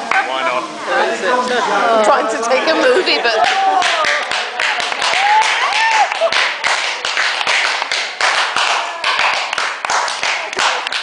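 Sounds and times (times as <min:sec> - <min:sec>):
people clapping in rhythm: 0:03.4 - 0:11.0.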